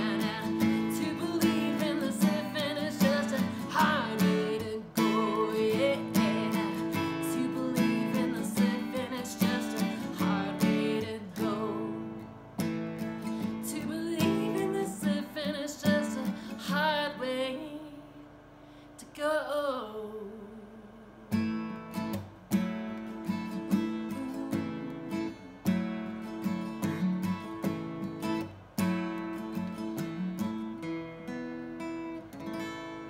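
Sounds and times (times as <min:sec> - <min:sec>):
woman singing: 0:00.0 - 0:12.4, 0:13.4 - 0:18.3, 0:19.0 - 0:21.2, 0:23.7 - 0:25.7
acoustic guitar strumming: 0:00.0 - 0:17.2, 0:21.3 - 0:33.0.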